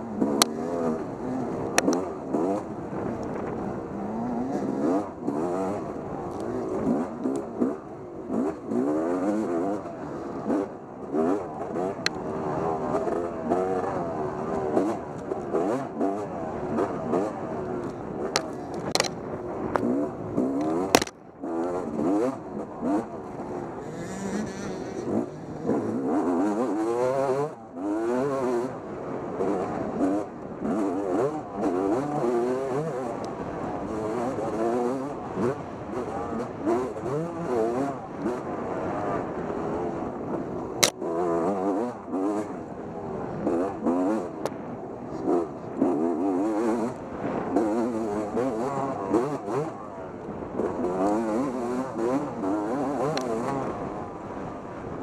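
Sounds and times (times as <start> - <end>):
dirt bike engine revving: 0.0 - 54.6.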